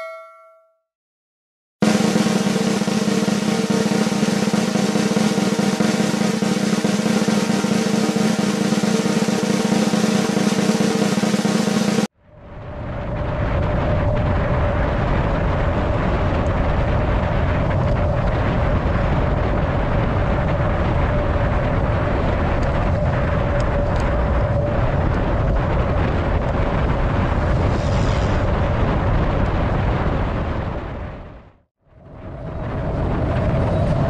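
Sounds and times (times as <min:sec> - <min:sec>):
wind rushing over microphone: 0:12.1 - 0:34.0
bicycle tyre and road noise: 0:12.2 - 0:34.0.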